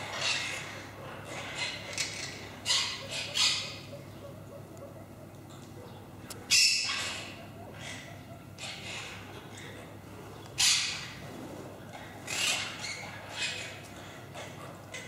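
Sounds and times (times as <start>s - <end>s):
parakeets squawking: 0.0s - 4.3s, 6.5s - 10.0s, 10.6s - 11.2s, 11.9s - 15.0s
steady low hum: 0.0s - 15.0s.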